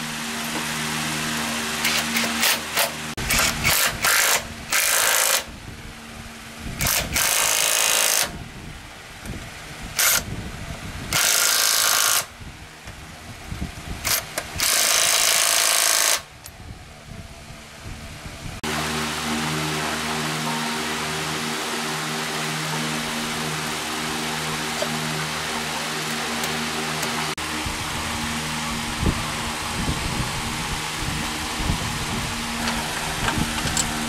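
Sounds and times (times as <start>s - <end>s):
power tool bursts: 0.0s - 5.5s, 6.8s - 8.4s, 9.9s - 10.3s, 11.1s - 12.3s, 14.0s - 16.3s.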